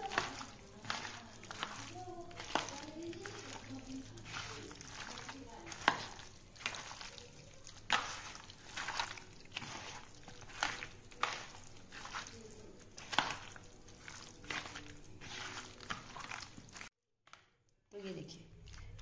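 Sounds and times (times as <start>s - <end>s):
wet squishes of hand mixing meat: 0.0s - 19.0s.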